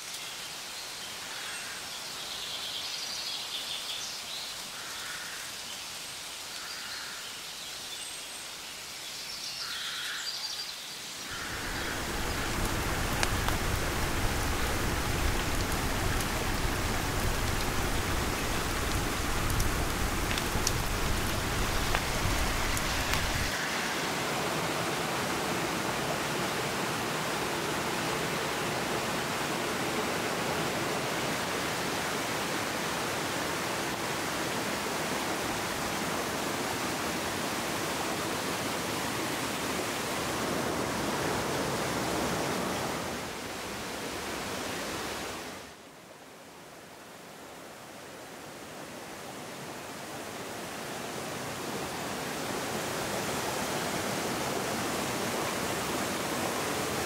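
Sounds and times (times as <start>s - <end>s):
faint hiss: 0.0s - 24.9s
stream rushing over rocks: 11.2s - 57.0s.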